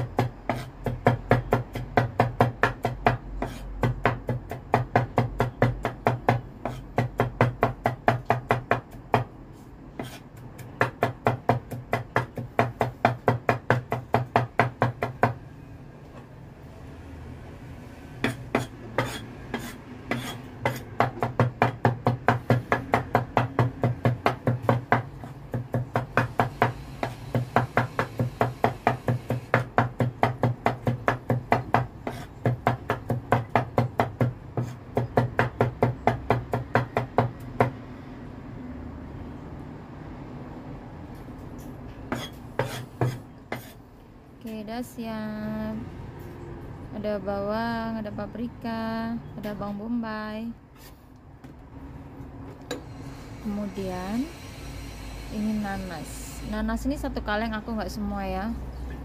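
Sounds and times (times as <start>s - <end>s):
cleaver chopping on wooden board: 0.0s - 9.3s, 18.2s - 37.8s, 42.1s - 43.8s.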